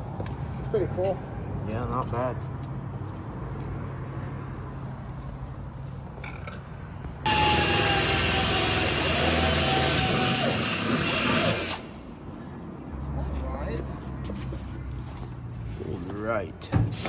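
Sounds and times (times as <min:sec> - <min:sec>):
cordless drill whining: 0:07.3 - 0:11.8.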